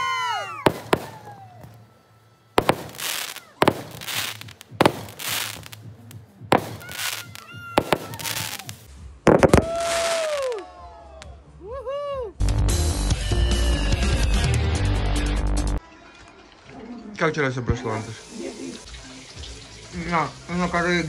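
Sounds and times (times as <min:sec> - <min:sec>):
falling whistles: 0:00.0 - 0:05.7, 0:06.6 - 0:08.8
fireworks bangs: 0:00.5 - 0:01.9, 0:02.5 - 0:10.6
crackling hiss: 0:00.6 - 0:10.6.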